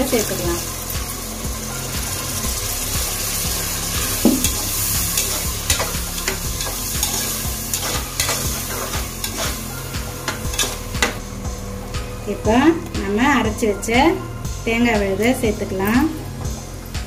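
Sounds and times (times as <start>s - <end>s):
sizzling in a pot: 0.0s - 17.0s
ladle scraping metal pot: 4.4s - 11.2s.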